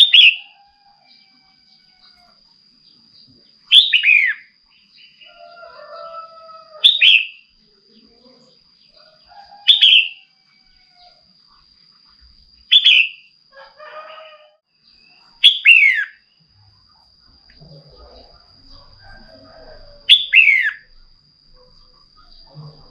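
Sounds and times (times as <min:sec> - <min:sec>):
quiet bird warbling: 0:12.7 - 0:16.4, 0:17.5 - 0:22.9.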